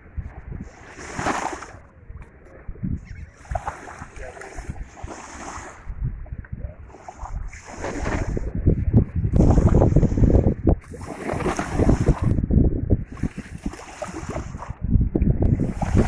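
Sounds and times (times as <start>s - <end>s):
wind buffeting microphone: 0.0s - 16.0s
small waves lapping on shore: 0.2s - 1.9s, 3.2s - 5.9s, 6.8s - 8.4s, 9.4s - 12.4s, 13.0s - 14.8s, 15.6s - 16.0s.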